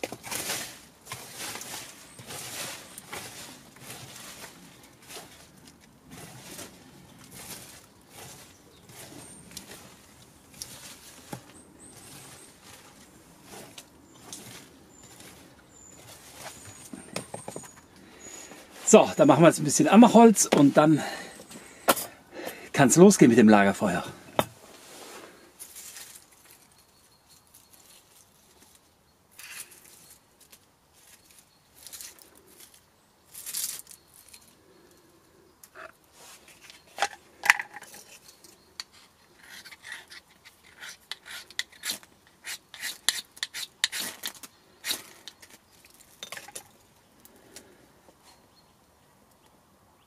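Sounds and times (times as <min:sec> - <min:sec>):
knife shaving wood: 0:38.1 - 0:46.0.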